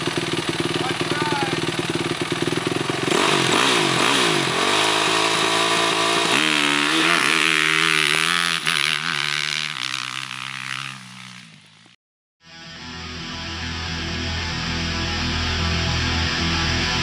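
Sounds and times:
motocross bike engine revving: 0.0 - 12.0.

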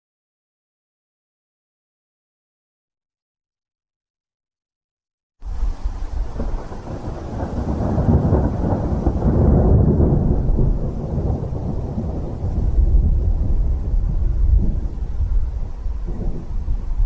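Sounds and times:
rain: 5.4 - 17.0
thunder rumbling: 5.5 - 17.0.

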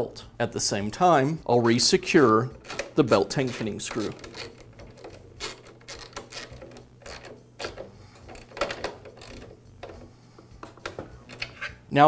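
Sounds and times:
ratchet wrench clicking: 2.6 - 10.0.

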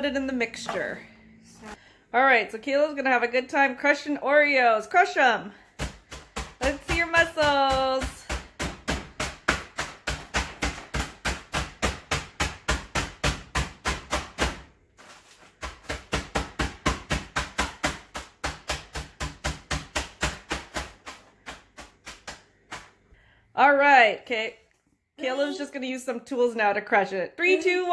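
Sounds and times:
fists pounding cookies in plastic bag: 5.6 - 23.0.

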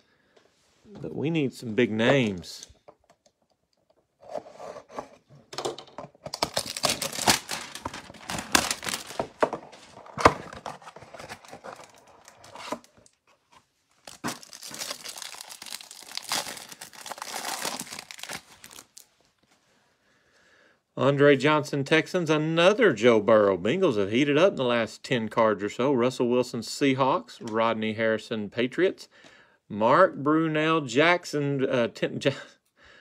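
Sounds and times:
cardboard tearing and crackling: 6.3 - 13.2, 14.0 - 19.0
cellophane crinkling and tearing: 6.3 - 19.1.

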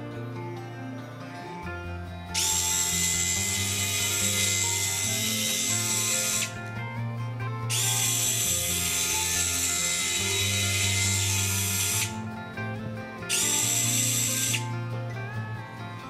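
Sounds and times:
background music: 0.0 - 16.0
electric screwdriver whine: 2.3 - 6.7, 7.7 - 12.2, 13.3 - 14.7.

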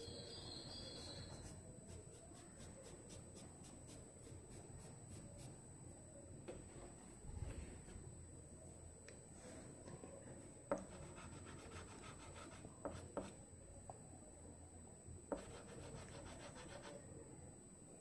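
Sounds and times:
fingers rubbing pastel on paper: 15.4 - 17.0.

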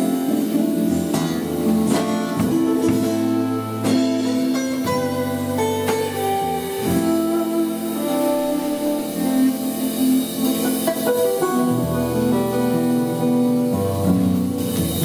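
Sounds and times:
acoustic guitar picked notes: 0.0 - 15.0.

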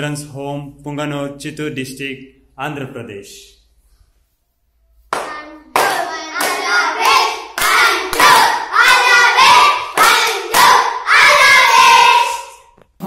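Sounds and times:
hand claps: 5.1 - 9.0, 9.9 - 10.8
boys chanting: 5.2 - 12.7.

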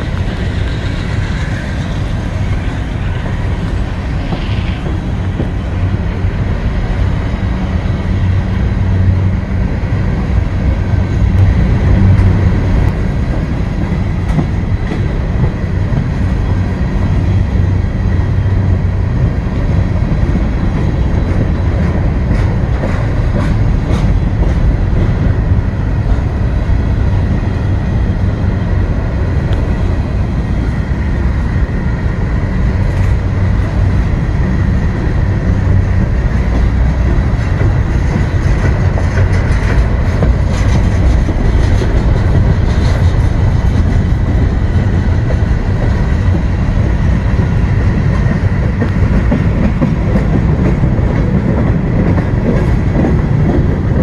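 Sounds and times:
clacks at rail joints: 0.0 - 30.4, 32.1 - 54.0
train wheels rumbling on rail: 0.0 - 54.0.

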